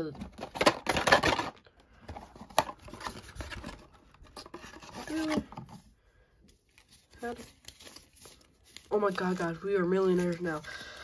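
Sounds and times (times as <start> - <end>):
cardboard rustling and scraping: 0.0 - 5.9.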